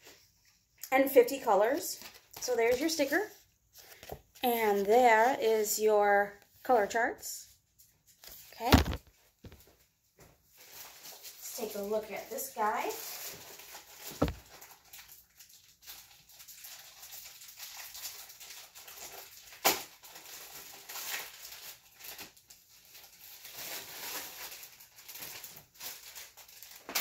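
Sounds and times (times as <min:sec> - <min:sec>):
plastic sleeve rustling: 0:07.8 - 0:09.8, 0:10.5 - 0:27.0.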